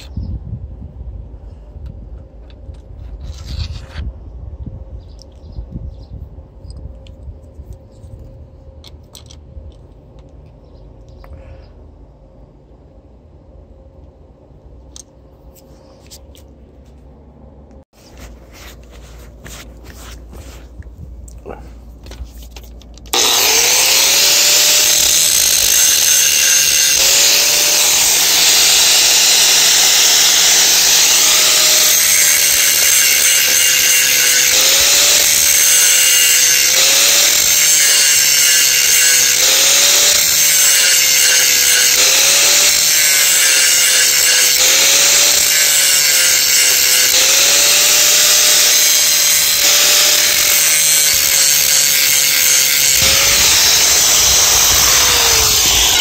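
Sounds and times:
power tool motor running: 23.1s - 56.0s.

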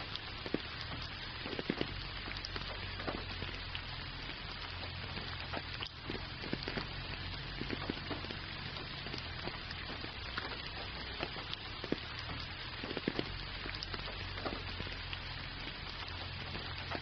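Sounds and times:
gentle rain hiss: 0.0s - 17.0s
raindrop ticks: 0.0s - 17.0s
steady low rumble: 0.0s - 17.0s.

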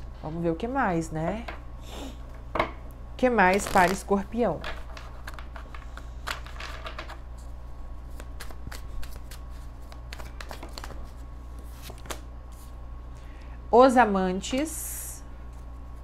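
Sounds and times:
steady low hum: 0.0s - 16.0s
cards being shuffled: 3.4s - 12.8s.

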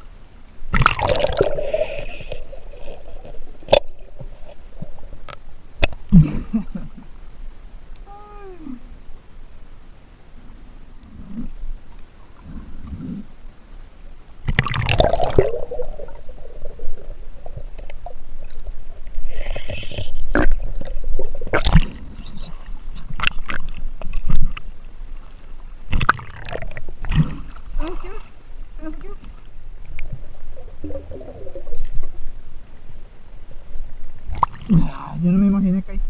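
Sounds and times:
underwater gurgling and bubbling: 0.7s - 5.4s, 14.5s - 22.3s, 25.9s - 27.6s, 29.9s - 32.8s.

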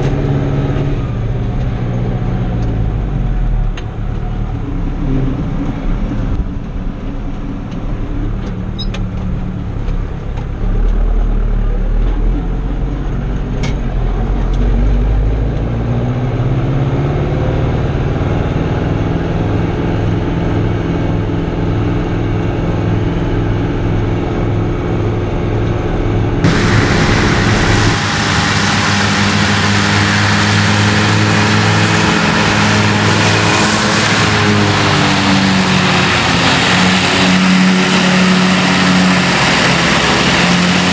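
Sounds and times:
tractor diesel engine: 0.0s - 40.9s
mower hissing: 26.4s - 40.9s.

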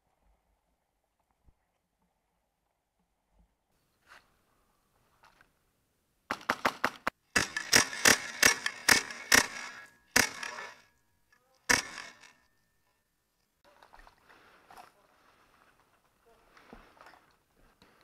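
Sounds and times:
airsoft gun shots echoing: 6.3s - 10.7s, 11.7s - 12.2s.

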